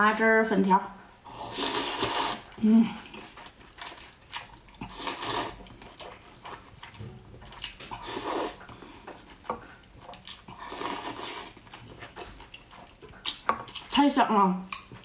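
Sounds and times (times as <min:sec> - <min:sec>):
person slurping noodles: 0:01.3 - 0:03.3, 0:04.7 - 0:05.6, 0:07.9 - 0:08.7, 0:10.5 - 0:11.6.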